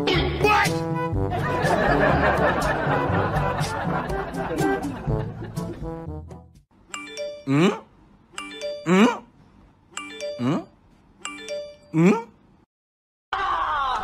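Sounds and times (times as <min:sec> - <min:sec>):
stepped chime notes: 0:07.0 - 0:07.7, 0:08.4 - 0:09.2, 0:10.0 - 0:10.7.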